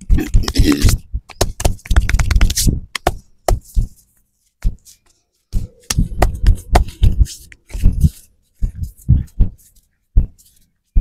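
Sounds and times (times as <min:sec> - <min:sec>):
rubbing noises: 0:00.0 - 0:11.0
sharp thumps: 0:05.5 - 0:09.6.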